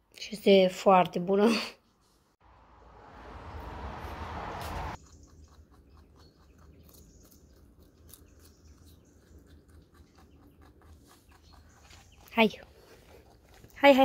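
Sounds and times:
rushing noise: 2.4s - 5.0s
rabbit chewing carrot: 4.6s - 14.0s.

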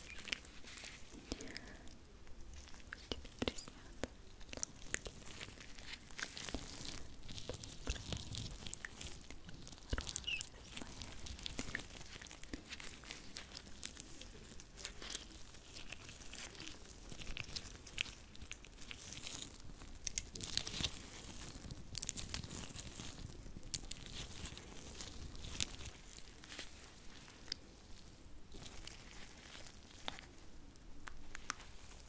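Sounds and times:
small crackles and clicks: 0.0s - 32.0s.

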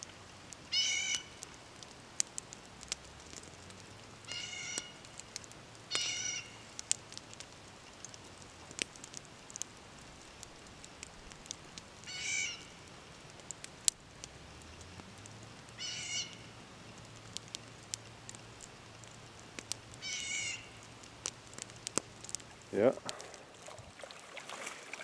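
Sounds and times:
campfire crackling: 0.0s - 25.0s
mewing animal calls: 4.3s - 5.0s, 5.9s - 6.6s, 20.0s - 20.8s.

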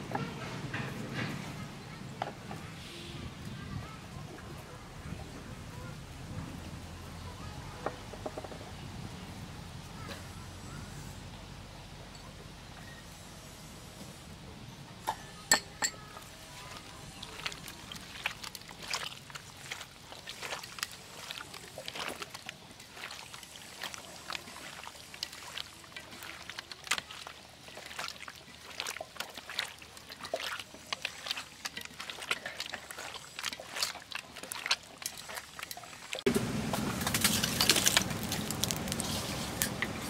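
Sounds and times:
hands kneading wet meat: 16.1s - 40.0s.

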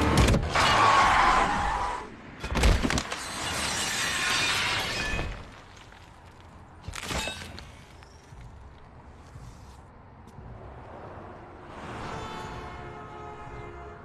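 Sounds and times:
road noise: 0.0s - 14.0s
crash: 2.4s - 6.2s.

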